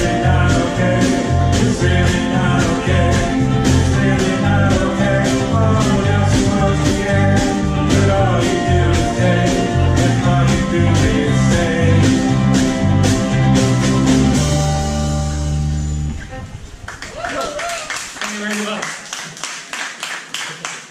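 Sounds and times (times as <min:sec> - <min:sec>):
ukuleles strumming: 0:00.0 - 0:14.9
pulsing bass line: 0:00.0 - 0:16.8.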